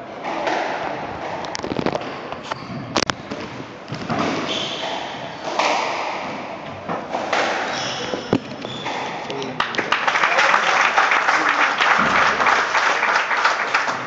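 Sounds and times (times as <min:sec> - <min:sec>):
squash ball hits: 0:03.2 - 0:09.2
shoes squeaking on wooden floor: 0:07.7 - 0:09.3.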